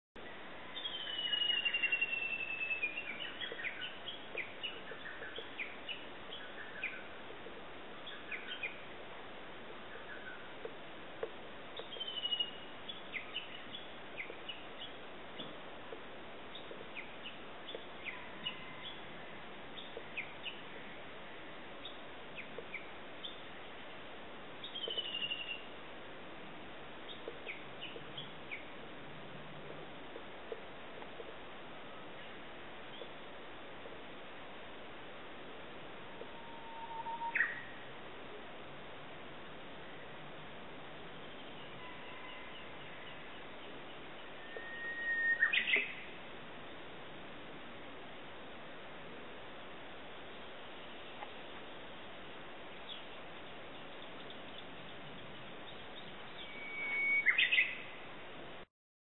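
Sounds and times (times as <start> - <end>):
background hiss: 0.2 - 58.7
falling whistled bird call: 36.4 - 37.7, 44.4 - 46.0, 56.4 - 57.8
birds chirping: 52.7 - 58.0.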